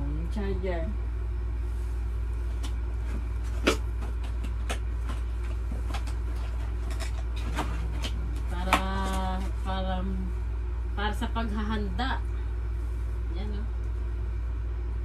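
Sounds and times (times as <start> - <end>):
steady low hum: 0.0 - 15.0
cardboard and paper rustling: 2.4 - 9.8.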